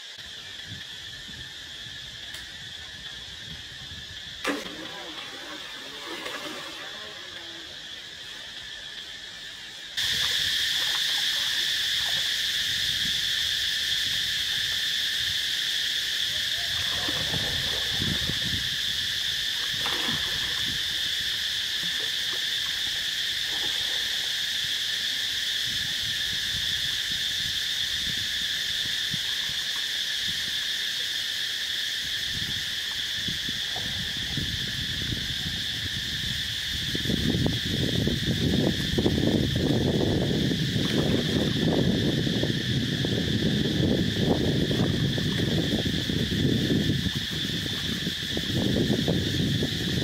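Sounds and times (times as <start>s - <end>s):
insects droning: 0.0s - 50.0s
water splashing: 4.4s - 8.5s, 16.6s - 18.7s, 19.6s - 24.3s.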